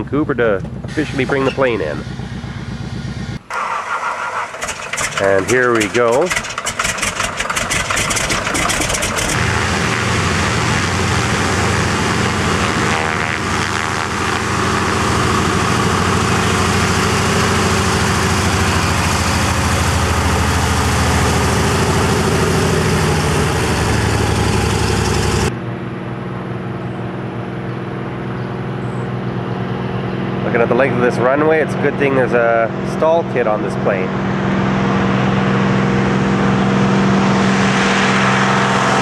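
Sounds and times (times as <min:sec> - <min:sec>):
propeller plane engine running: 0:00.0 - 0:39.0.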